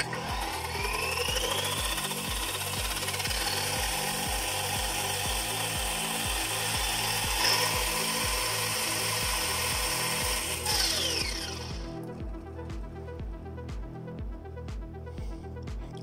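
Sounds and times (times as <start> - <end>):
rc car motor whirring: 0.0 - 11.9.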